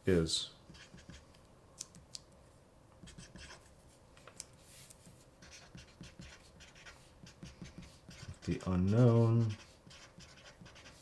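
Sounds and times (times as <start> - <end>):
felt-tip marker writing on paper: 0.7 - 1.2, 5.4 - 11.0.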